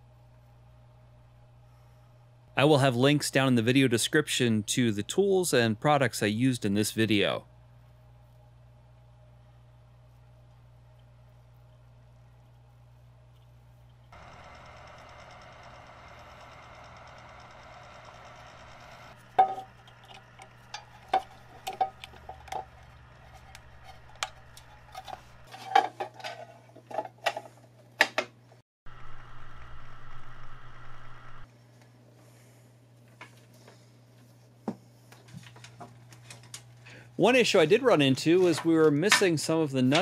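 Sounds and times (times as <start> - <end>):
steady whir: 14.0 - 25.5, 28.9 - 31.5.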